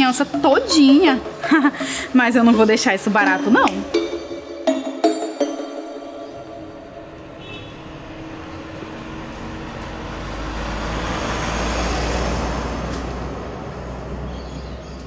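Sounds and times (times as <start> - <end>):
car engine: 6.4 - 14.2.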